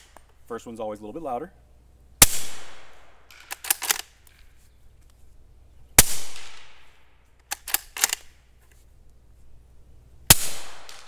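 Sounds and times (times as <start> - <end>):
suppressed rifle shot: 2.2 - 4.0, 6.0 - 7.0, 10.3 - 11.0
rifle bolt clicking: 3.3 - 4.1, 7.4 - 8.3.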